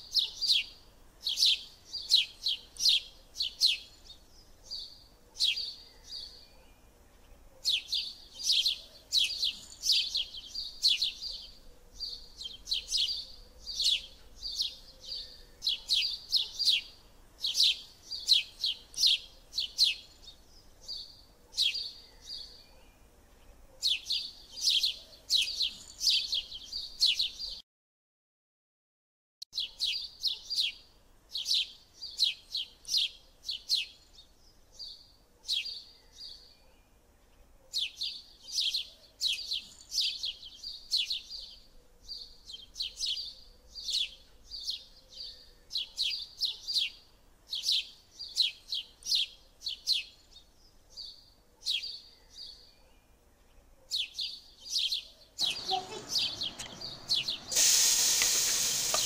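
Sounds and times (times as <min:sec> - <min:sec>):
small bird chirping: 0:00.0 - 0:27.6, 0:29.6 - 0:59.0
food sizzling in hot oil: 0:57.5 - 0:59.0.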